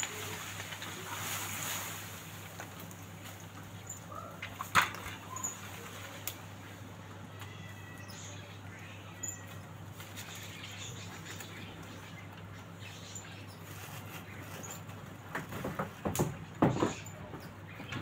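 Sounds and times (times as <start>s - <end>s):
dry leaves crackling: 0.0s - 15.3s
faint bird chirps: 7.4s - 14.8s.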